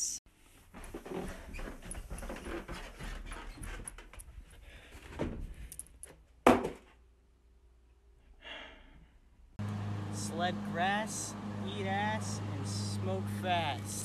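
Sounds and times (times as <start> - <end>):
loud thump: 6.5 - 6.8.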